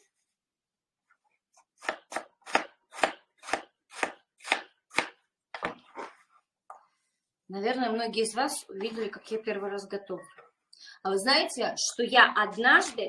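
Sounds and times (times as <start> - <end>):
knife chopping on plastic board: 1.8 - 5.8.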